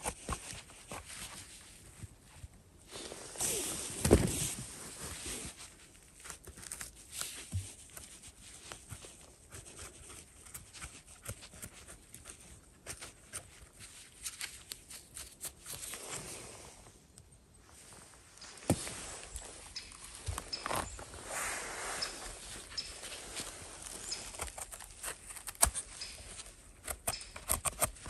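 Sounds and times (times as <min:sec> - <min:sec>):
footsteps on dry leaves and twigs: 0:17.6 - 0:27.5.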